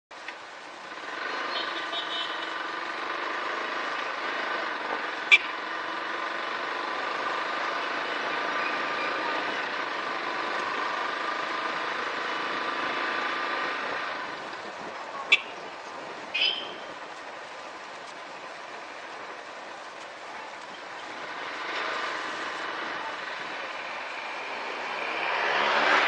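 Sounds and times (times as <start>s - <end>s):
motorcycle engine cruising: 0.2s - 26.0s.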